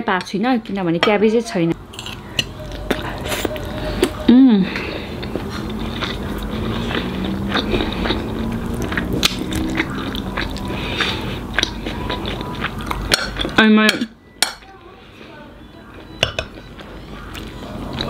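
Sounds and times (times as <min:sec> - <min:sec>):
chewing: 0:01.9 - 0:13.6, 0:15.7 - 0:18.0.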